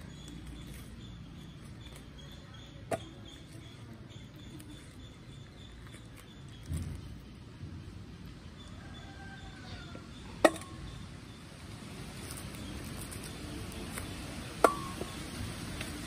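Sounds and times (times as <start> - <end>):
fruit tearing with sticky rustling: 0.0 - 7.4, 11.9 - 16.0.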